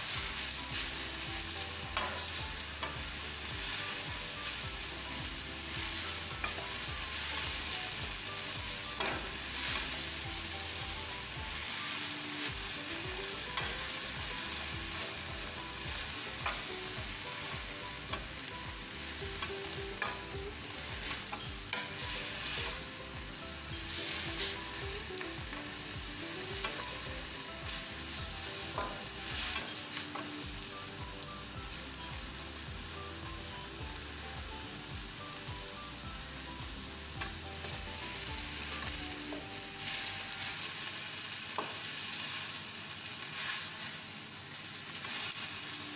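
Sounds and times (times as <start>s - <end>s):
spatula scraping a pan: 0.0s - 22.9s, 26.4s - 30.4s, 43.2s - 44.1s
vegetables sizzling in a wok: 0.0s - 45.9s.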